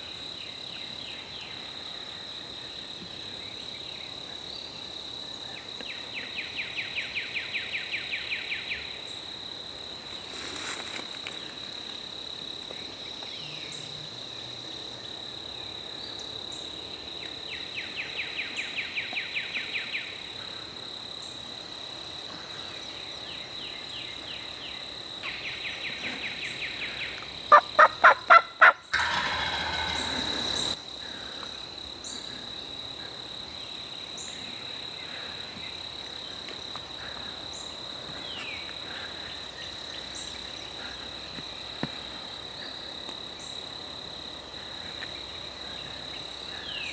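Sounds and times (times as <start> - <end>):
insect trill: 0.0 - 46.9
turkey calling: 27.5 - 30.8
turkey gobbling: 27.5 - 30.8.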